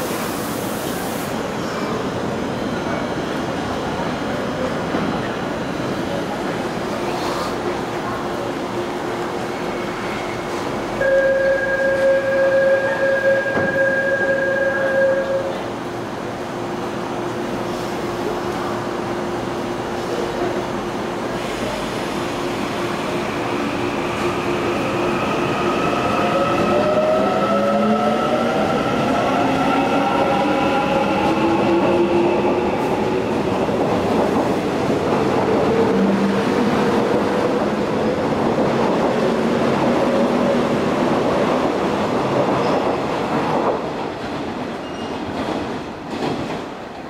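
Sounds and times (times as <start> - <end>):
train wheels rumbling on rails: 13.0 - 47.0.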